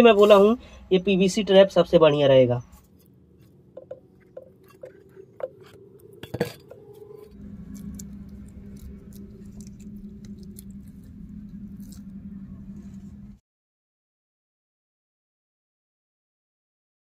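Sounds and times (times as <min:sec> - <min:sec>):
steady low hum: 0:00.0 - 0:13.4.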